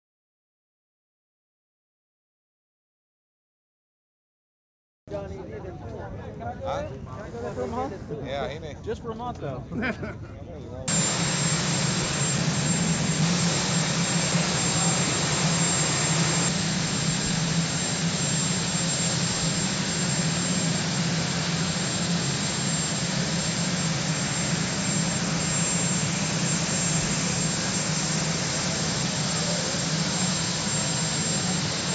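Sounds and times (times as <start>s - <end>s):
helicopter turbine engines: 5.2s - 31.9s
low hum: 10.9s - 31.8s.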